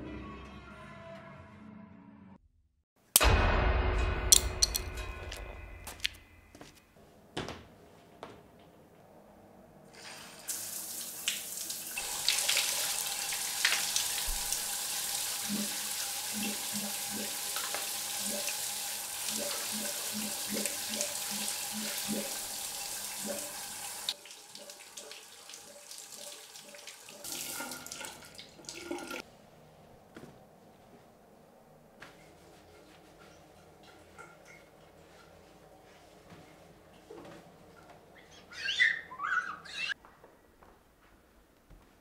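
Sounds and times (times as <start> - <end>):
shower water spray: 10.0 - 24.2.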